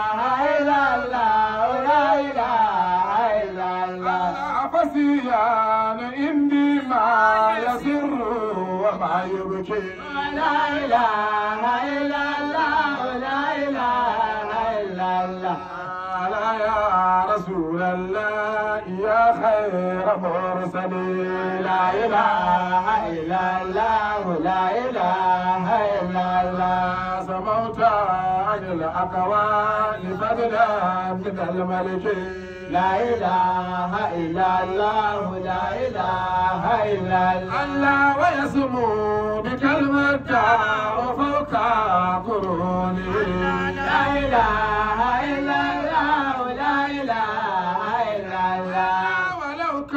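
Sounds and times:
men singing into a microphone: 0.0s - 49.9s.

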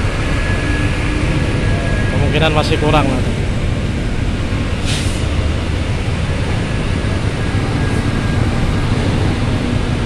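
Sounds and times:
truck and car engines rumbling: 0.0s - 10.0s
short hiss: 4.8s - 5.2s.

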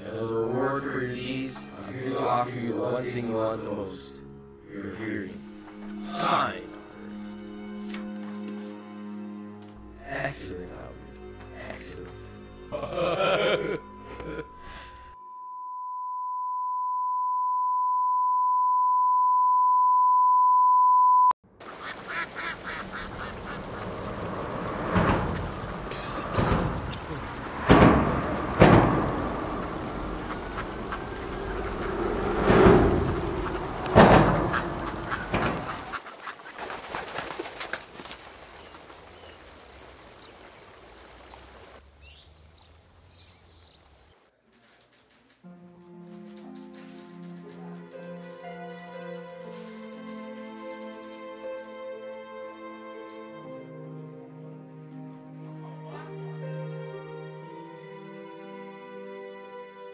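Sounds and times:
outdoor hiss: 21.5s - 36.5s
ducks quacking: 21.6s - 37.1s
knocks and rustling: 22.6s - 38.4s
pulsing rushing noise: 22.8s - 36.0s.

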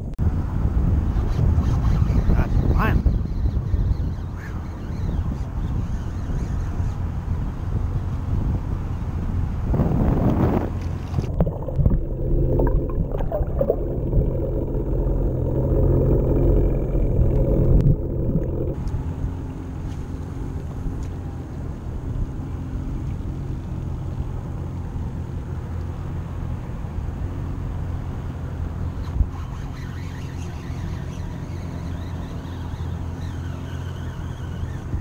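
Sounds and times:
wind: 0.0s - 35.0s
water noise: 9.7s - 20.6s
boat motor heard underwater: 10.0s - 35.0s
water gurgling: 11.0s - 18.8s.

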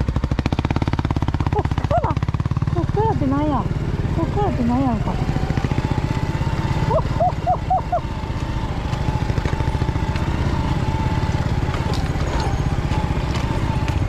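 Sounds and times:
motorcycle engine running at low speed: 0.0s - 14.0s.

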